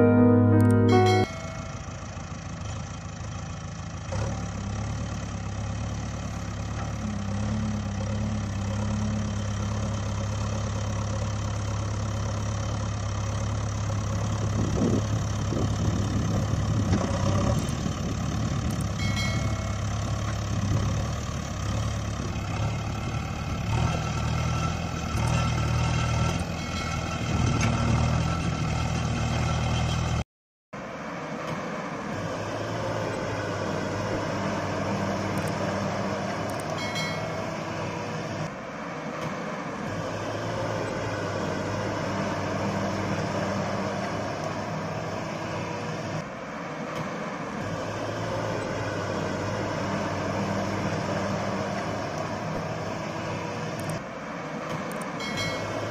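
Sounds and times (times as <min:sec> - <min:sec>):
vehicle engine droning: 0:00.0 - 0:30.2, 0:30.8 - 0:55.9.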